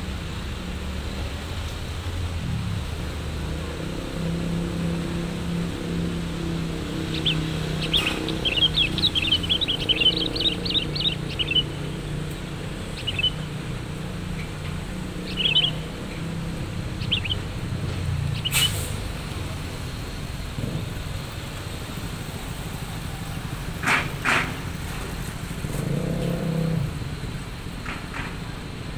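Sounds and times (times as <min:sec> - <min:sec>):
idling vehicle engines hum: 0:00.0 - 0:28.9
small birds chirping: 0:06.8 - 0:18.8.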